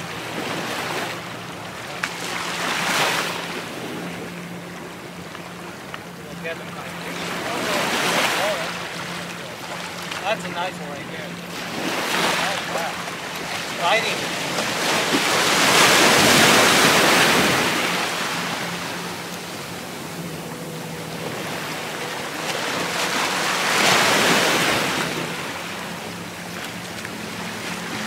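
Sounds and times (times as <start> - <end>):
surf washing over rocks: 0.0 - 4.8, 5.6 - 28.0.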